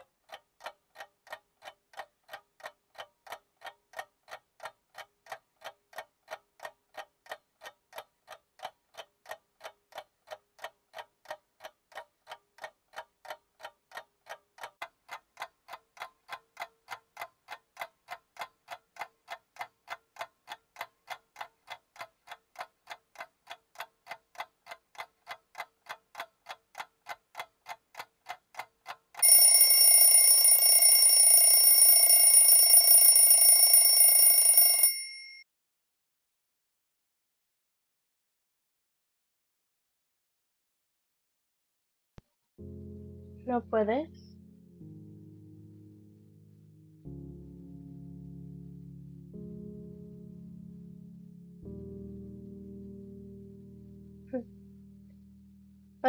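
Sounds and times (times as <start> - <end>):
clock ticking: 0.0 - 35.3
shrill alarm ringing: 29.2 - 35.4.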